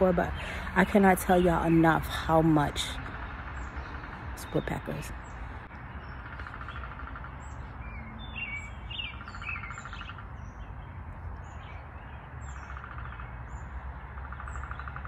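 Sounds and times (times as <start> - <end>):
small birds chirping: 0.0 - 15.0
woodpecker rattling trills: 6.0 - 10.7, 12.4 - 15.0.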